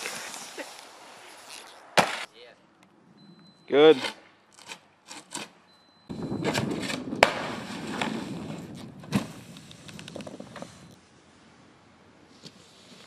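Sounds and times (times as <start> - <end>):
snowboard scraping through snow: 0.0 - 2.2, 6.5 - 9.6.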